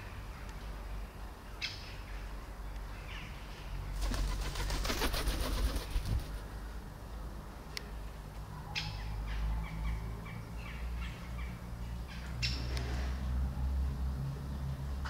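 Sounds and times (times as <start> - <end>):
fluttering wing beats: 4.0 - 6.5.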